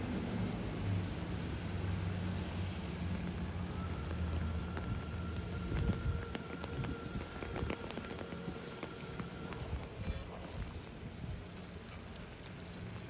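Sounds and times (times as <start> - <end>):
raindrops ticking close by: 0.0 - 13.0
steady rain: 0.0 - 13.0
low rumble: 2.8 - 11.5.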